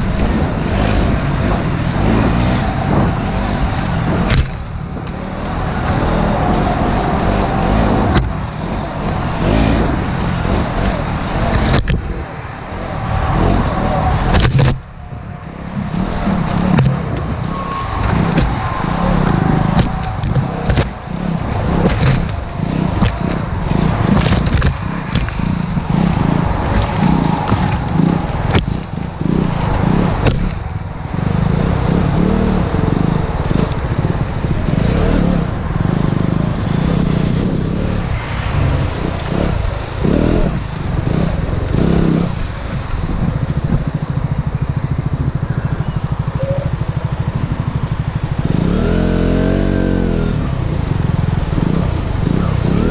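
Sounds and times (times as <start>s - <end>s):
motorcycle engine: 0.0s - 52.9s
knocks and clatters: 19.7s - 29.1s.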